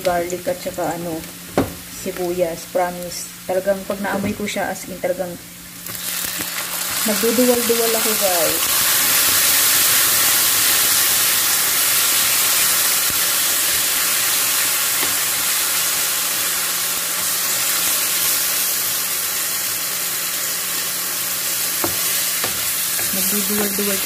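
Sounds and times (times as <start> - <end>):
meat and onions sizzling in pan: 5.6 - 24.0.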